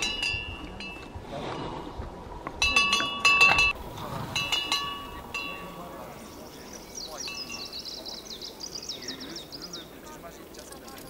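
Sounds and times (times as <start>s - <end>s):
small metal chime ringing: 2.6s - 3.8s, 4.4s - 6.0s.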